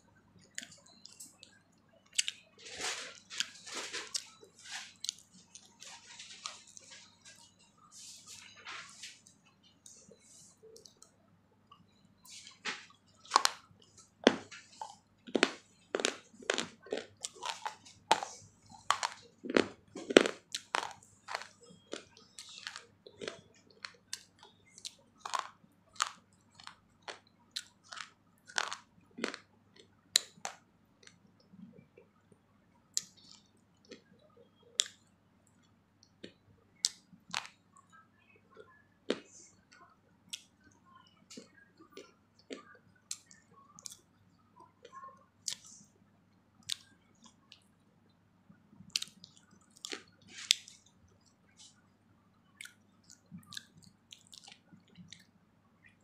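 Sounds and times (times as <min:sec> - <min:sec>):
person chewing crunchy food: 0:00.4 - 0:09.1, 0:12.2 - 0:31.8, 0:32.9 - 0:35.0, 0:36.0 - 0:37.6, 0:41.3 - 0:44.1, 0:48.9 - 0:51.8, 0:52.5 - 0:55.3.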